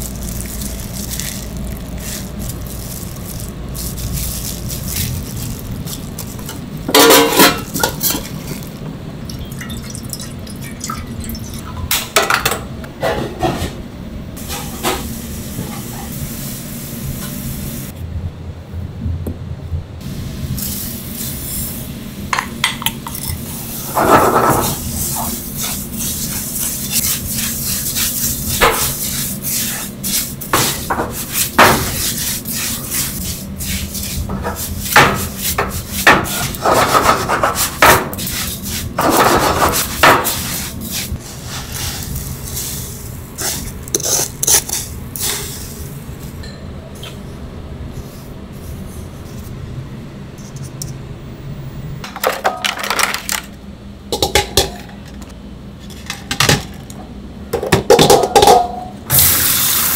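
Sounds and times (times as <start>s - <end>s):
wooden spoon scraping a pan: 23.8s - 42.8s.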